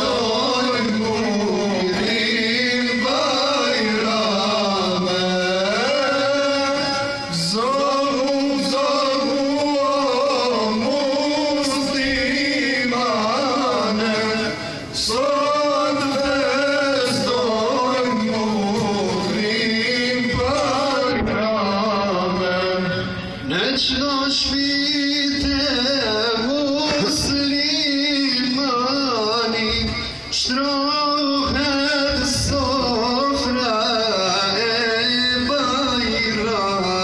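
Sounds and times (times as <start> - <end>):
men singing a devotional hymn: 0.0 - 37.0.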